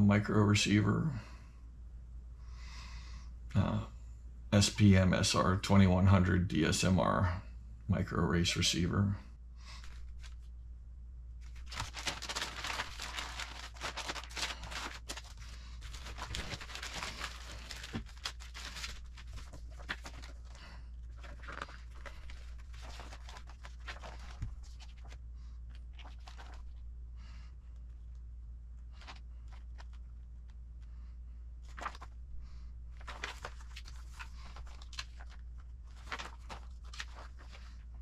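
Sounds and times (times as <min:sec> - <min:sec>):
low steady hum: 0:00.0 - 0:38.0
paper booklet crackling: 0:09.8 - 0:10.5, 0:11.4 - 0:26.8, 0:28.9 - 0:30.6, 0:31.6 - 0:32.2, 0:32.9 - 0:38.0
plastic bag crinkling: 0:11.5 - 0:25.1.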